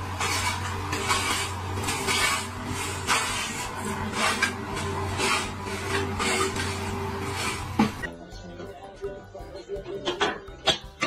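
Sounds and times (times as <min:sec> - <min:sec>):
lawnmower running: 0:00.0 - 0:08.1.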